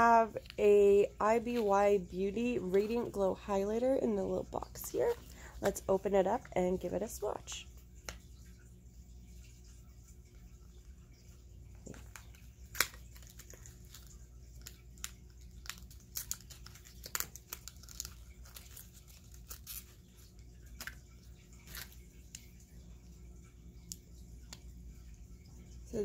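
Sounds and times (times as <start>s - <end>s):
packaging tearing and crinkling: 11.9s - 21.0s.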